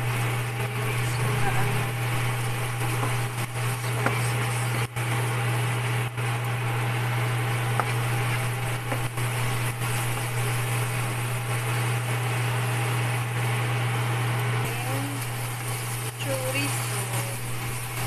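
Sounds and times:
low hum: 0:00.0 - 0:18.0
sausage frying in oil: 0:00.0 - 0:18.0.

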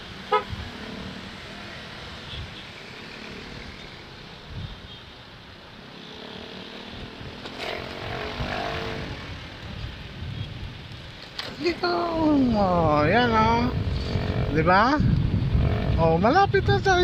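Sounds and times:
wind rushing over microphone: 0:00.0 - 0:02.8, 0:06.9 - 0:17.0
motorcycle engine drone: 0:00.0 - 0:04.6, 0:05.6 - 0:10.8, 0:11.8 - 0:16.4.

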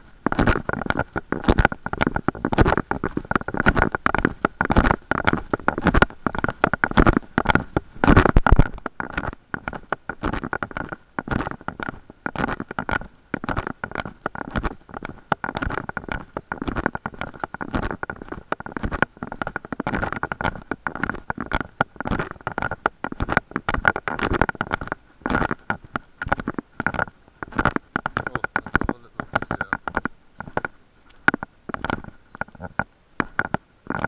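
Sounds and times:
faint steady whine: 0:00.0 - 0:34.0
microphone handling rumble: 0:00.0 - 0:34.0.

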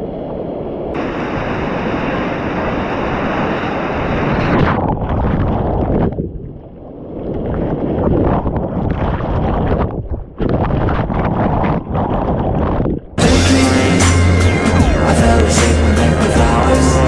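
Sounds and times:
muffled underwater rush and gurgle: 0:00.0 - 0:13.2
white water rushing: 0:01.0 - 0:04.7, 0:13.2 - 0:17.0.

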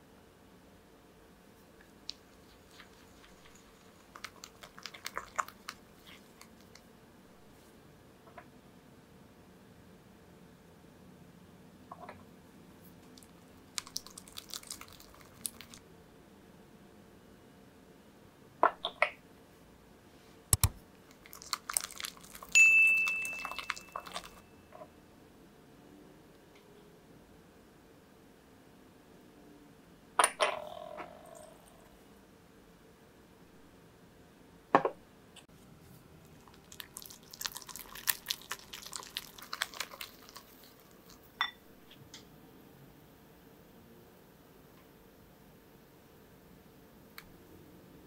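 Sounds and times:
whisk clicking against glass bowl: 0:22.5 - 0:24.4
glass bowl ringing: 0:22.6 - 0:24.7.

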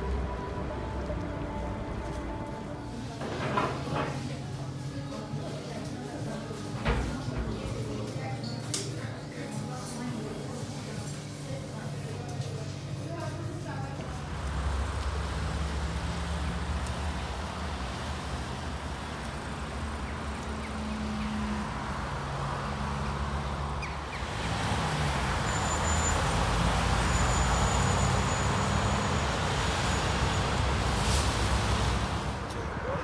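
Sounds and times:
passing cars engine and tyre noise: 0:00.0 - 0:04.7, 0:13.6 - 0:33.0.

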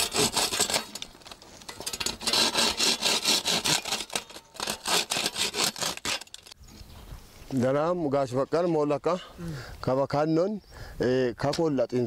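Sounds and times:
hacksaw cutting bamboo: 0:00.0 - 0:01.1, 0:01.8 - 0:06.6.

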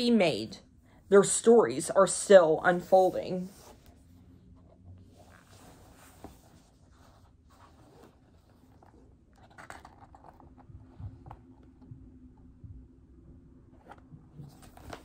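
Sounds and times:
book pages rustling: 0:02.7 - 0:11.8, 0:13.8 - 0:15.0.

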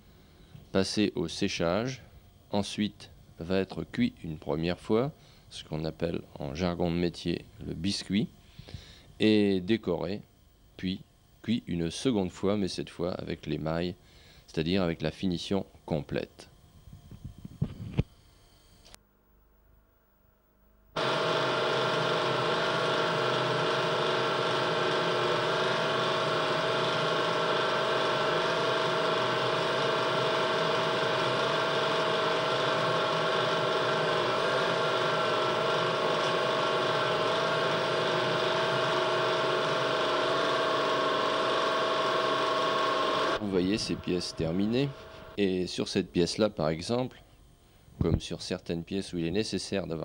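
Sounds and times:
potter's wheel whine: 0:21.0 - 0:45.4.

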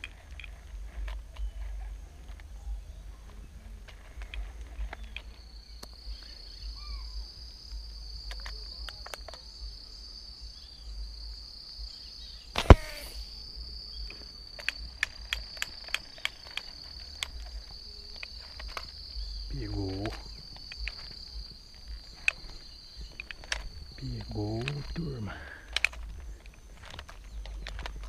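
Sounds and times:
insects droning: 0:00.0 - 0:28.0
sharp clicks: 0:03.3 - 0:09.8, 0:12.5 - 0:28.0
slingshot rubber band snap: 0:12.6 - 0:13.4.

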